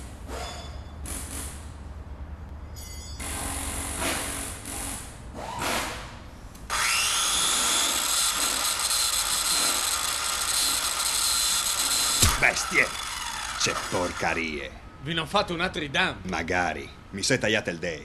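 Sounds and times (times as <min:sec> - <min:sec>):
electric power tool whining: 0:06.7 - 0:14.3.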